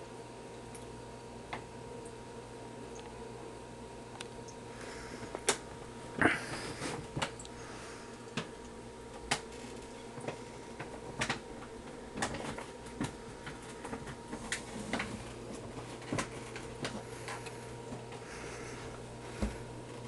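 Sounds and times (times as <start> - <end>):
clicks taps and rattles: 8.3 - 18.3.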